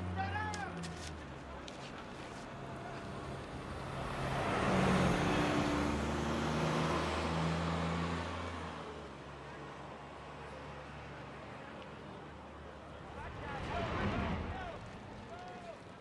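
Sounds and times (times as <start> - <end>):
vehicle driving past: 2.5 - 9.0, 12.0 - 16.0.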